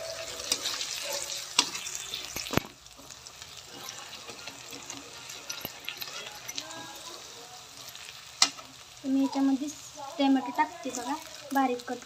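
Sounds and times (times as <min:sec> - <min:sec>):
metal spatula stirring and scraping: 0:00.0 - 0:11.9
food sizzling in hot oil: 0:00.0 - 0:12.0
spatula clicking on pan: 0:01.5 - 0:02.7, 0:08.4 - 0:08.7.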